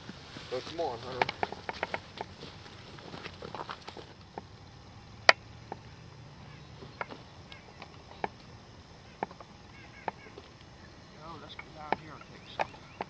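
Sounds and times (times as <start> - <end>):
sharp knocks and clicks: 1.2 - 2.3, 6.8 - 8.5, 11.4 - 13.0.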